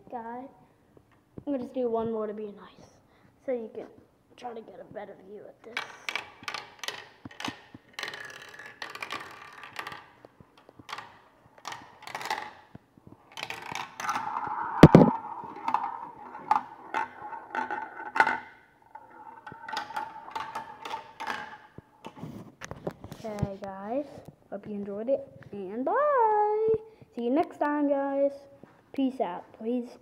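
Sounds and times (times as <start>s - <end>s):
marble clattering down plastic run: 5.7s - 12.7s, 13.3s - 21.8s
marble rolling whir: 6.0s - 12.7s, 13.3s - 21.9s.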